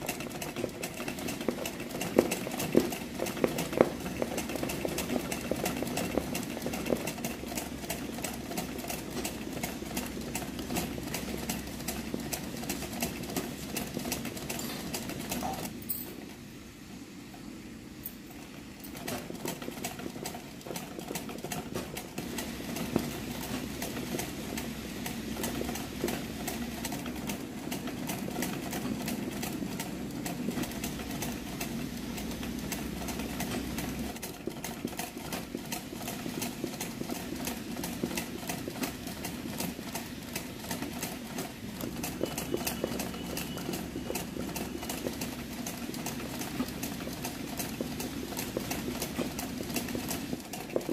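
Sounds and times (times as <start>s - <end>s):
sewing machine stitching: 0.0s - 15.9s, 18.3s - 50.9s.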